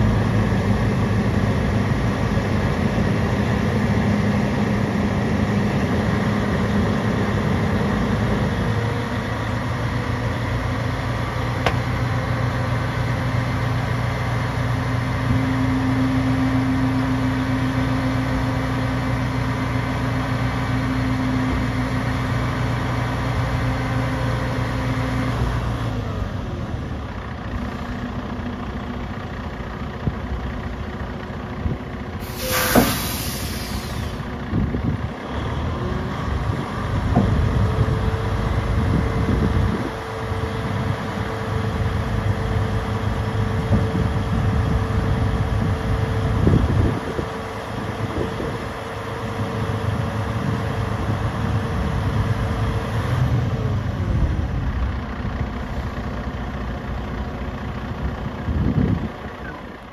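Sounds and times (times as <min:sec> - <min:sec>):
truck engine running: 0:00.0 - 0:59.9
air hiss burst: 0:32.2 - 0:34.2
steady hydraulic whine: 0:32.2 - 0:34.3.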